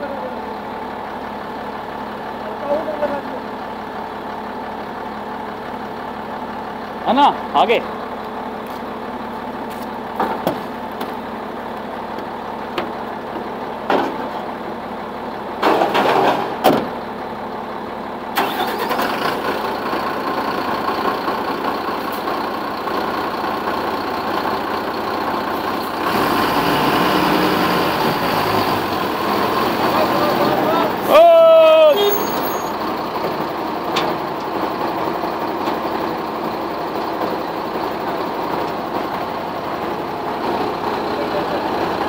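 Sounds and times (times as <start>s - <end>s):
crane diesel engine running: 0.0s - 42.0s.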